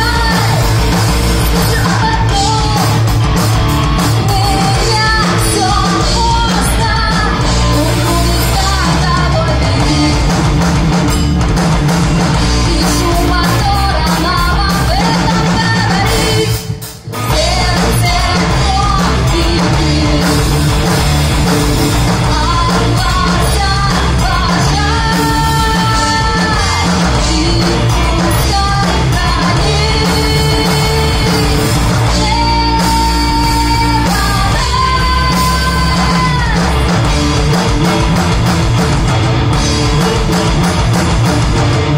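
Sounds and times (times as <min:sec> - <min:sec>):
woman singing: 0:00.0 - 0:03.2, 0:04.0 - 0:10.5, 0:12.5 - 0:21.3, 0:22.0 - 0:37.0
bass guitar: 0:00.0 - 0:41.9
drums: 0:00.0 - 0:41.9
electric guitars: 0:00.0 - 0:41.9.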